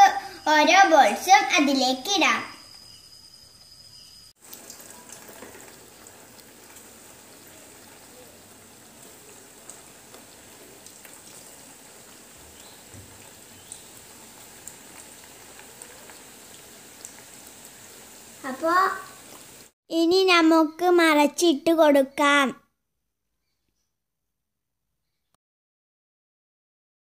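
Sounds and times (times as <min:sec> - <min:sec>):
dough sizzling in hot oil: 0:00.1 - 0:19.8.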